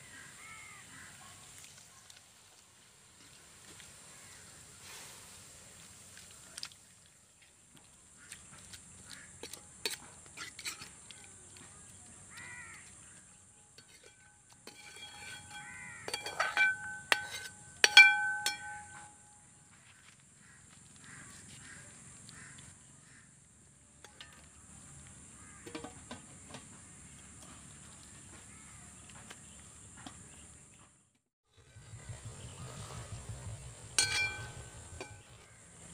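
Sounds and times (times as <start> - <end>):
metal ladle scraping a pot: 9.1 - 11.2, 13.7 - 19.1, 33.9 - 35.5
ladle knocking against pot: 13.8 - 19.1.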